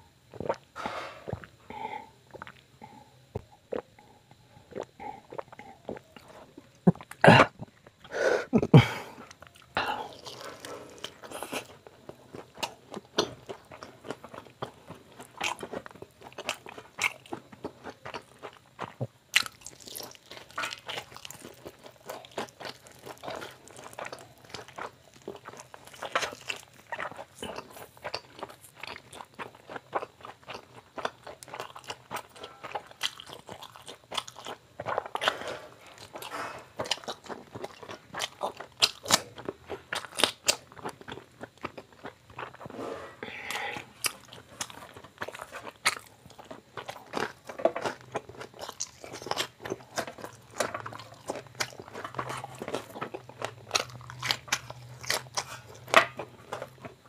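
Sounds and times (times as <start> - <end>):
wet chewing: 9.2 - 42.7, 43.3 - 57.0
crunchy bites into fried chicken: 12.4 - 42.6, 43.8 - 57.0.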